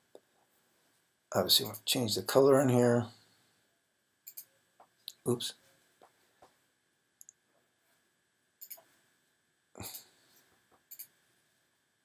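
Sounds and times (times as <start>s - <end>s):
computer mouse clicks: 4.2s - 4.5s, 8.6s - 8.9s, 10.7s - 11.2s.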